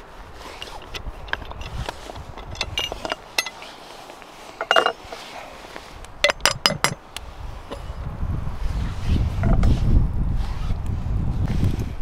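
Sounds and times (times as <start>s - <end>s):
sharp metal clinks: 2.5s - 3.6s.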